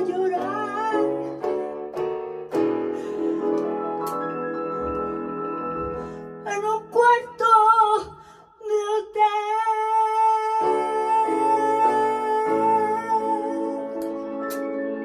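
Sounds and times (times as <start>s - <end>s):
woman singing blues: 0.0s - 1.5s, 6.4s - 14.1s
digital piano chords: 0.0s - 8.0s, 9.7s - 15.0s.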